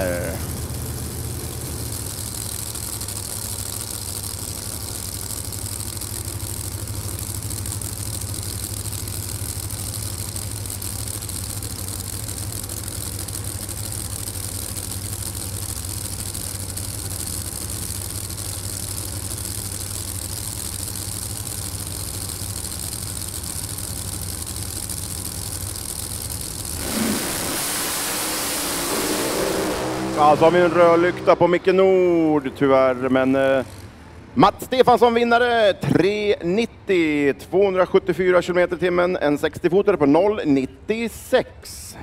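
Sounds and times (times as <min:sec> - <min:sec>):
drag car engines droning: 0:00.0 - 0:42.0.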